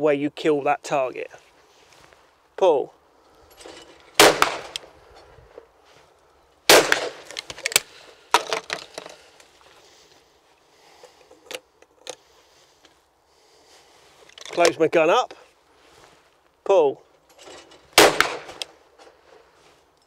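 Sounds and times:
shotgun clicks and light knocks: 0:03.5 - 0:05.7, 0:06.7 - 0:09.6, 0:11.0 - 0:13.0, 0:17.3 - 0:19.2
shotgun shots with echo: 0:04.2 - 0:04.8, 0:06.7 - 0:07.3, 0:18.0 - 0:18.6.

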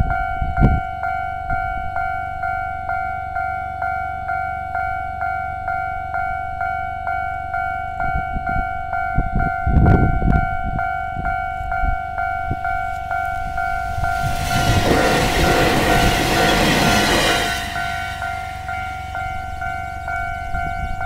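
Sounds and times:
electric train passing: 0:12.2 - 0:21.0
low rumble: 0:13.3 - 0:19.9.

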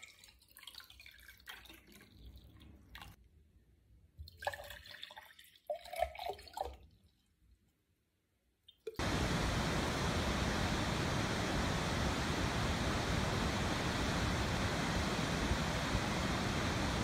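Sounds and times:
waterfall rushing: 0:09.0 - 0:17.0.

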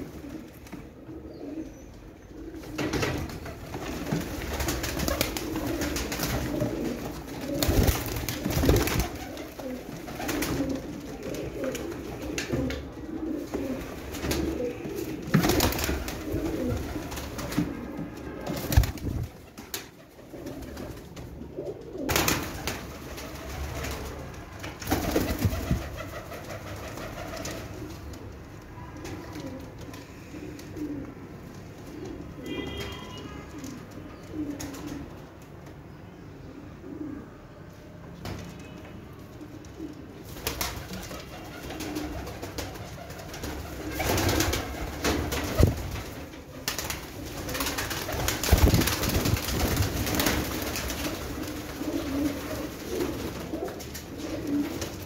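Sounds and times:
pigeons cooing: 0:00.0 - 0:24.4, 0:29.1 - 0:32.8, 0:33.5 - 0:35.2, 0:36.5 - 0:37.5, 0:39.4 - 0:55.0
sharp knocks or wing flaps: 0:07.6 - 0:09.2, 0:18.5 - 0:19.4, 0:46.7 - 0:50.9.

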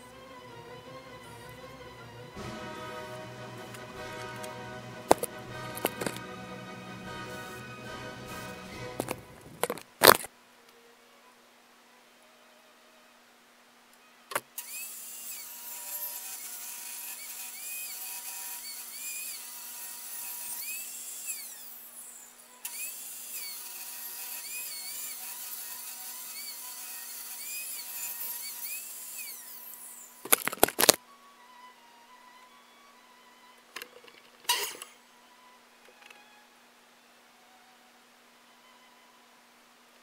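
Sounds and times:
table saw ripping wood: 0:00.0 - 0:10.3, 0:14.3 - 0:31.0, 0:34.5 - 0:35.0.

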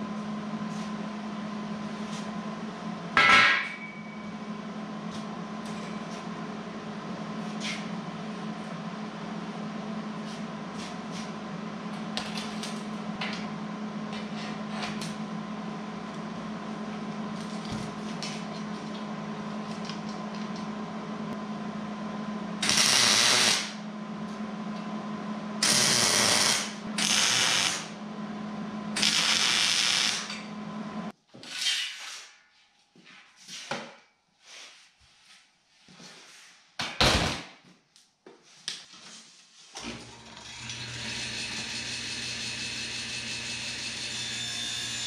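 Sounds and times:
welding hiss: 0:22.6 - 0:23.8, 0:25.6 - 0:27.9, 0:29.0 - 0:30.3.

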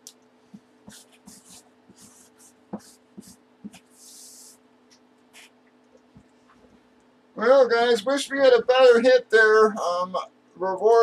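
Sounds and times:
marker scratching on cardboard: 0:00.5 - 0:04.6, 0:05.3 - 0:05.6.

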